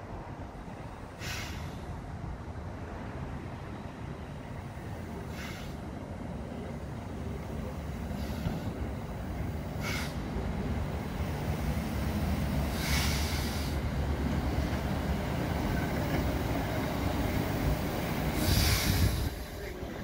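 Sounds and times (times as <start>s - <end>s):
steam locomotive rumbling: 0.0s - 20.0s
steam hissing: 1.2s - 1.8s, 5.3s - 5.8s, 8.0s - 10.4s, 11.0s - 20.0s.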